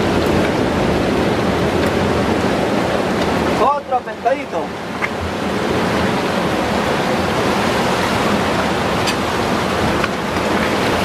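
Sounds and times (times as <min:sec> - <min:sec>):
surf breaking on rocks: 0:00.0 - 0:11.0.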